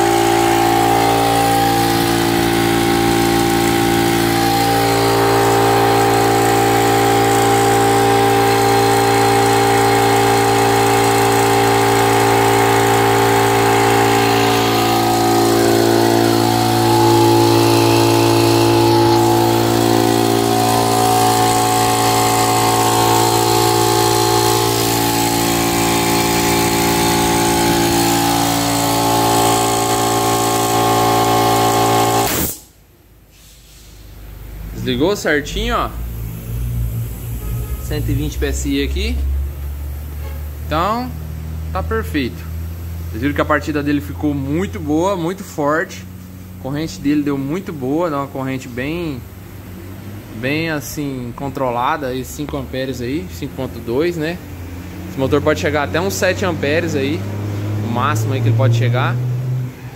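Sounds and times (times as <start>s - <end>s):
electric motor hum: 0.0s - 32.5s, 35.8s - 40.2s
air compressor running: 0.0s - 59.9s.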